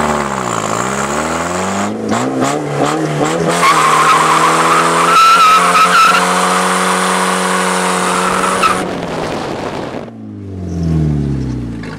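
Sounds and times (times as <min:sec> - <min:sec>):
car engine at high revs: 0:00.0 - 0:11.9
tyres squealing: 0:03.5 - 0:06.6.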